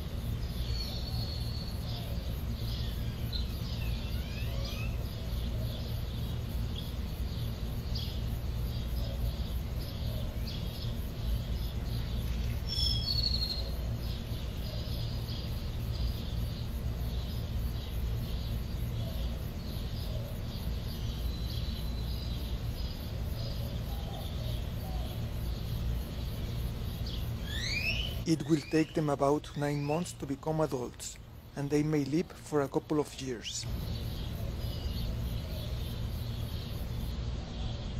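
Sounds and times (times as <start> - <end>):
rapid high chirping: 9.9 - 37.1.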